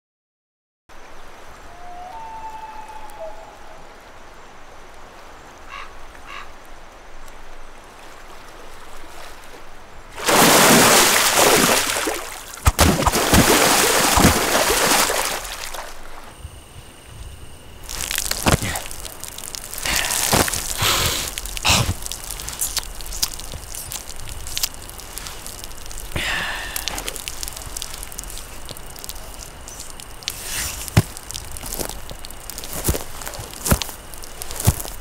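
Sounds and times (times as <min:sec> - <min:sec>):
dry twigs crackling: 0:17.6 - 0:35.0
sharp twig snaps: 0:17.9 - 0:26.1.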